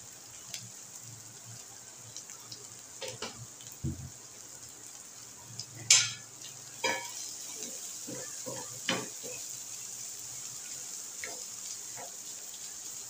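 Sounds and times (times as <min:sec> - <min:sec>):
food sizzling in a pan: 0:00.0 - 0:13.0
spatula scraping and clinking on pan: 0:05.9 - 0:06.2, 0:06.8 - 0:07.3, 0:08.1 - 0:09.4.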